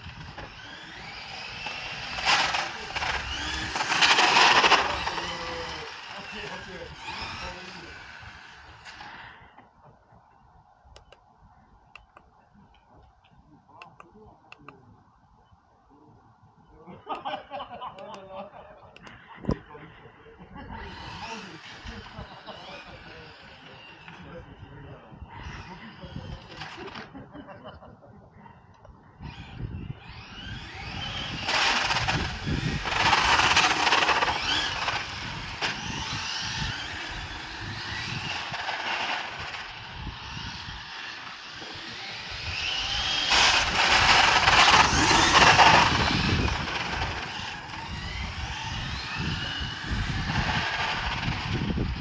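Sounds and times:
tyre noise on asphalt: 0.0s - 9.3s, 29.4s - 52.0s
electric motor whine: 0.0s - 9.7s, 20.7s - 27.1s, 29.2s - 52.0s.

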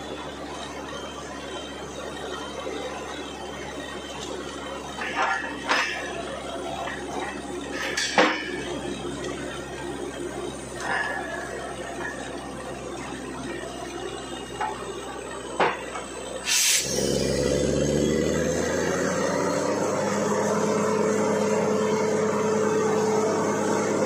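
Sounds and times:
engine running steadily: 0.0s - 24.0s
short sharp burst of noise: 16.4s - 17.6s.

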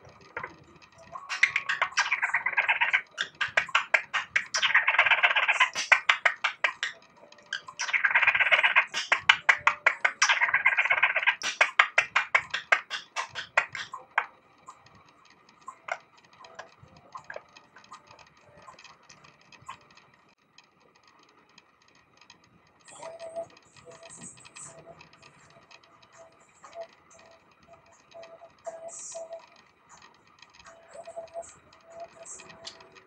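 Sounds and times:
faint high chirps: 0.0s - 14.8s
budgerigar chattering: 1.3s - 14.0s.

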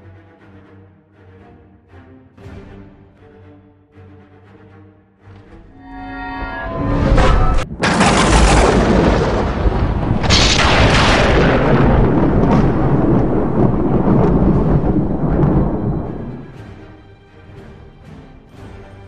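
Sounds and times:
thunder crash and rumble: 7.1s - 16.6s
sharp thunder crack: 7.6s - 16.6s
heavy rain: 7.8s - 16.6s.

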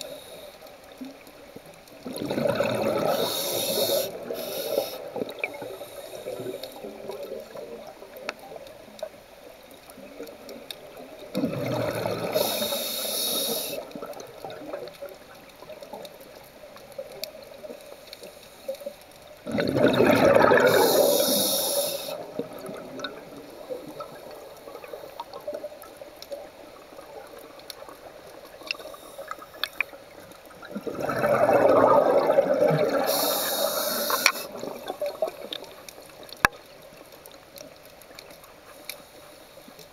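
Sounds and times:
underwater noise: 0.0s - 39.9s
diver exhaling bubbles underwater: 2.0s - 4.4s, 11.4s - 12.7s, 19.4s - 21.6s, 30.6s - 35.6s.

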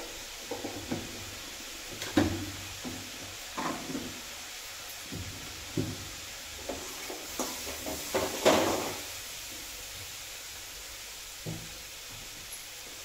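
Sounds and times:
kitchen containers knocking and clattering: 6.6s - 9.0s.

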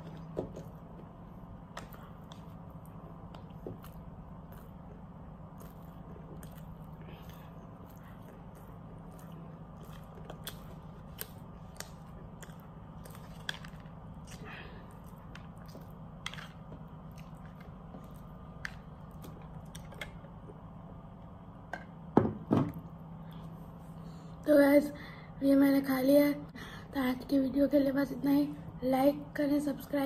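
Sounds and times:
steady low hum: 0.0s - 30.0s
person chewing: 1.7s - 20.2s.

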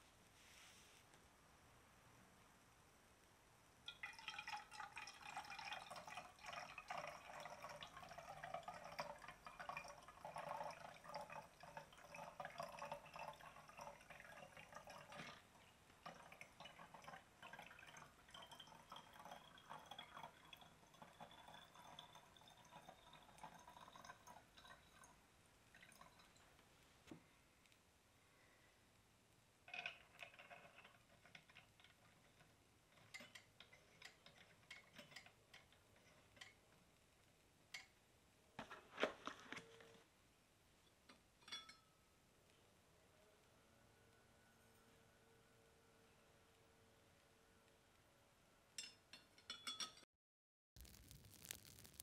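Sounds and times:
water pouring into metal boiler: 3.8s - 26.6s, 29.7s - 36.6s, 50.8s - 52.0s.

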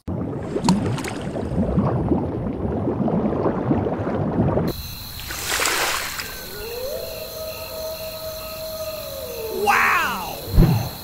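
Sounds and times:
underwater bubbling and gurgling: 0.1s - 4.8s
high chirping pulses: 4.7s - 11.0s.

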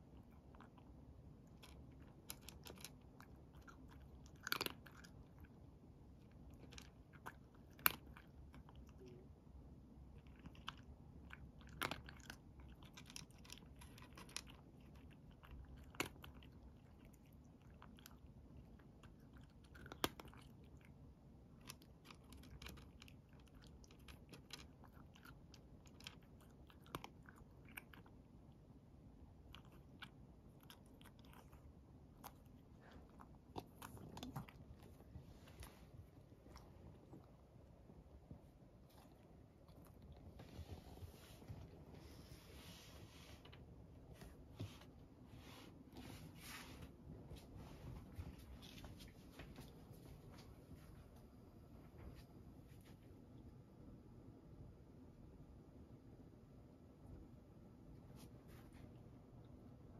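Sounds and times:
cat crunching dry kibble: 0.0s - 9.3s, 10.0s - 42.0s.

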